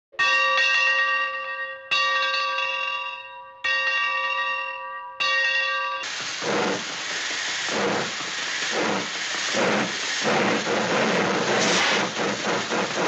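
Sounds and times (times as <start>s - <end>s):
large bell ringing: 0.2s - 6.1s.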